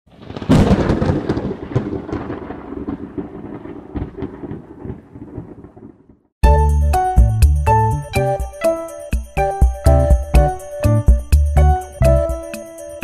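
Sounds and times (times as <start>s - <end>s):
thunderclap boom: 0.1s - 6.3s
crackling rumble with sharp cracks: 0.1s - 6.4s.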